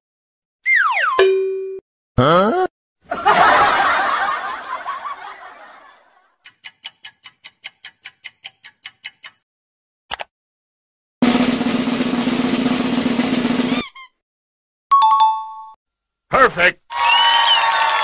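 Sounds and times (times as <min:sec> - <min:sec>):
drum roll: 0:11.2 - 0:13.7.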